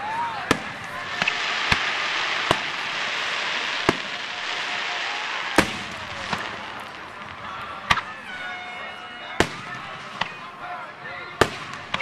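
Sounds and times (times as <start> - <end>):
fireworks booming: 0.4 - 10.4
steady hiss: 0.5 - 8.0.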